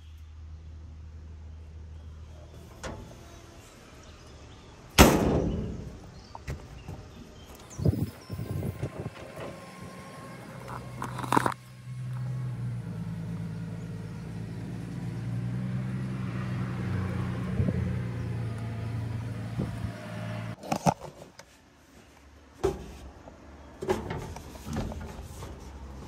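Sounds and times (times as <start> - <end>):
engine humming: 0.9 - 20.6.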